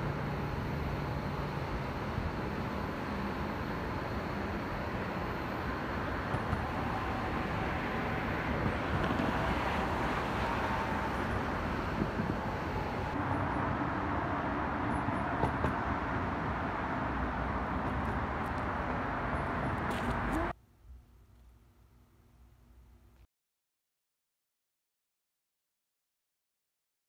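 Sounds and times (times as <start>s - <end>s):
highway traffic: 0.0s - 20.6s.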